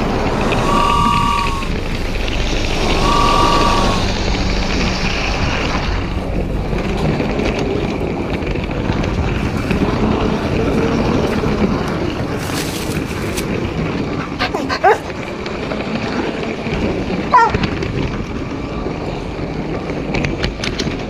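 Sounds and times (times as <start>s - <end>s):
faint hum: 0.0s - 7.6s
toy train motor and wheels rumbling: 0.0s - 21.0s
high beep: 0.2s - 1.8s, 2.6s - 4.1s.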